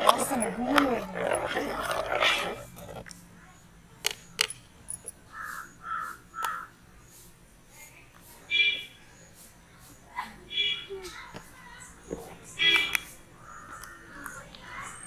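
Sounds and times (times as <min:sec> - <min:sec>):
crow cawing: 0:05.3 - 0:06.7.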